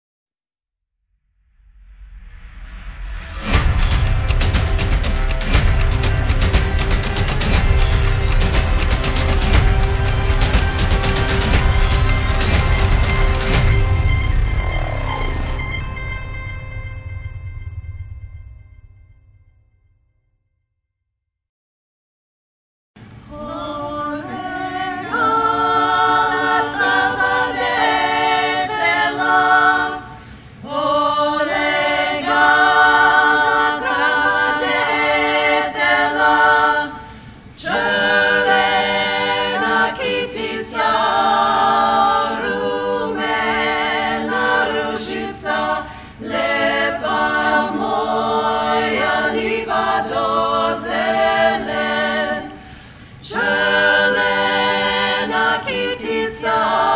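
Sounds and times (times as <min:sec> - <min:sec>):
women singing a cappella harmony: 0:23.0 - 0:56.9.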